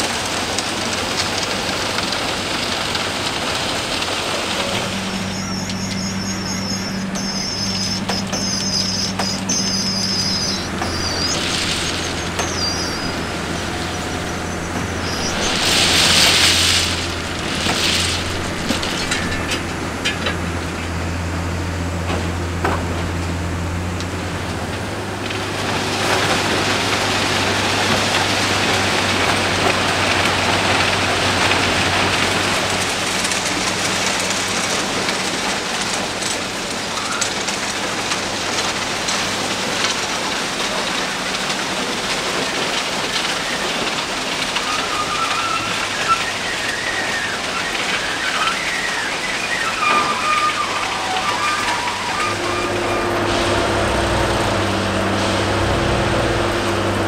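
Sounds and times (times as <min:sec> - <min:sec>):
diesel engine drone: 0:00.0 - 0:57.0
warbling high whine: 0:04.4 - 0:37.6, 0:42.9 - 0:57.0
loud hissing burst: 0:04.5 - 0:21.9.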